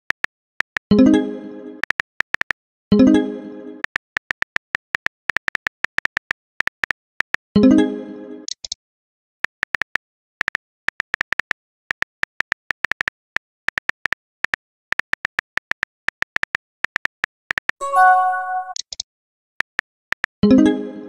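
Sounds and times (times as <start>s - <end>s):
message sent chime: 17.8s - 18.8s.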